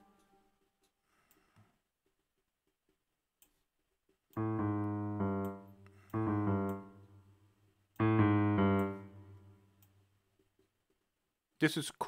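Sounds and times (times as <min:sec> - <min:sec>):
piano chords: 0:04.4 - 0:09.7.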